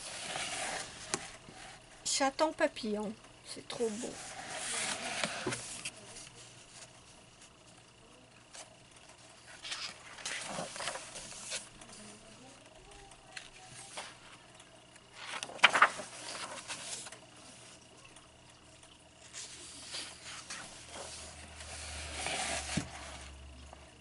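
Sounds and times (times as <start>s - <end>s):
paper pages rustling: 3.9s - 7.6s, 9.4s - 12.2s, 15.1s - 17.8s, 19.2s - 23.4s.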